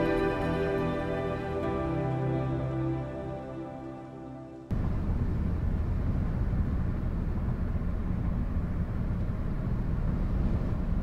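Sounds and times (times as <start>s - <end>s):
steady low rumble: 4.7s - 11.0s.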